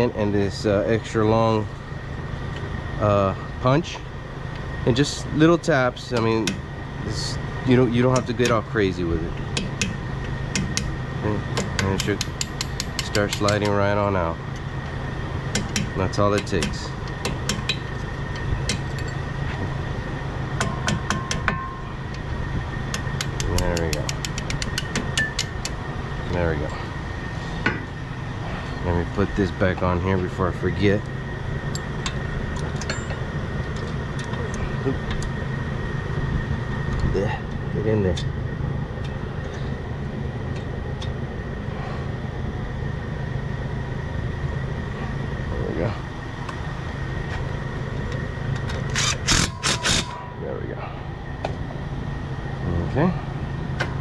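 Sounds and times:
low background rumble: 0:00.0 - 0:54.0
hammer tapping steel punch: 0:09.6 - 0:10.9, 0:11.5 - 0:13.8, 0:20.6 - 0:21.8, 0:22.9 - 0:25.8
metallic ring: 0:20.6 - 0:22.0, 0:32.8 - 0:33.3, 0:49.4 - 0:50.6.

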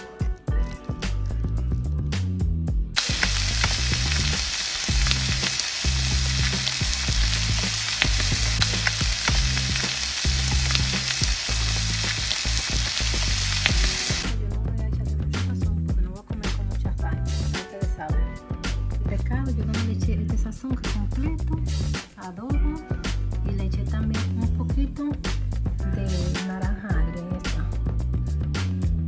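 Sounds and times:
background music: 0:00.0 - 0:29.0
fish sizzling in a pan: 0:03.0 - 0:14.3.

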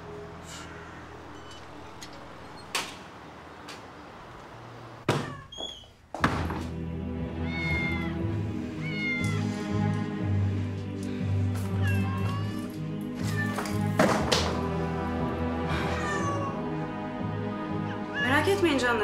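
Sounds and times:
background music: 0:00.0 - 0:03.1, 0:06.2 - 0:19.0
cat meowing: 0:07.4 - 0:08.2, 0:08.8 - 0:09.5, 0:11.7 - 0:13.8, 0:15.8 - 0:16.6, 0:17.8 - 0:18.4.

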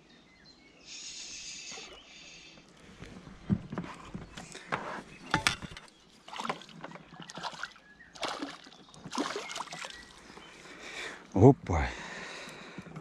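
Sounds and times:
water splashing: 0:06.2 - 0:10.4.

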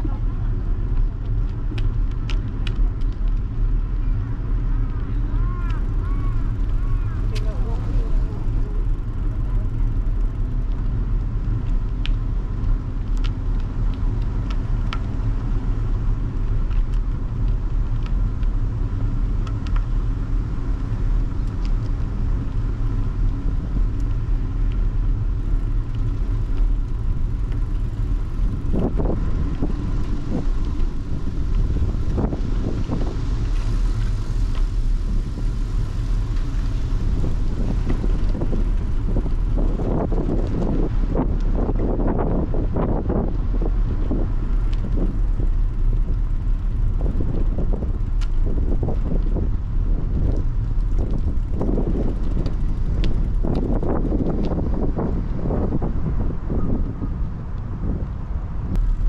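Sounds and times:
road noise: 0:00.0 - 0:59.0
wind buffeting microphone: 0:00.0 - 0:59.0.

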